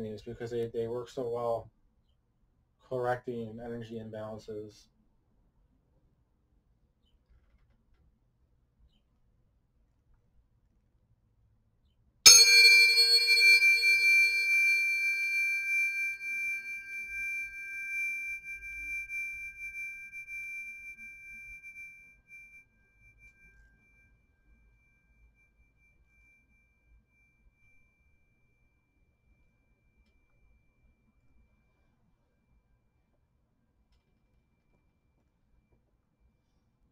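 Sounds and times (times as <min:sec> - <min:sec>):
tuning forks ringing: 0:12.3 - 0:28.3.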